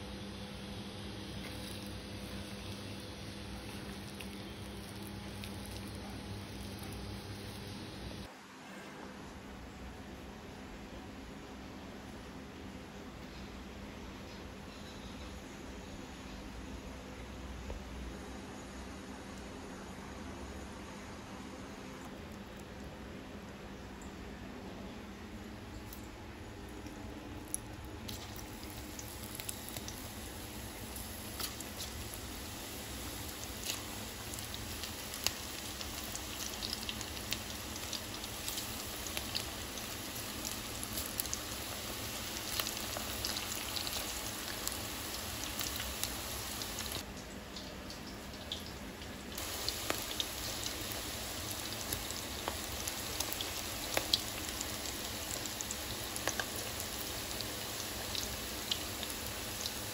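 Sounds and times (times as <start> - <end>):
food sizzling in hot oil: 1.2 - 8.3, 28.1 - 47.0, 49.3 - 59.9.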